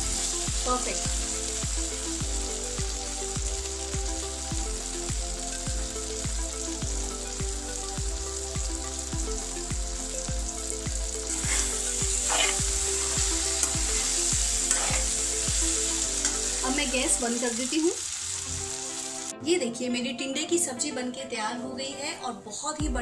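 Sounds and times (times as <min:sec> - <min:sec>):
curry sizzling in a pan: 0:00.0 - 0:19.4
spatula stirring and scraping: 0:11.3 - 0:16.6.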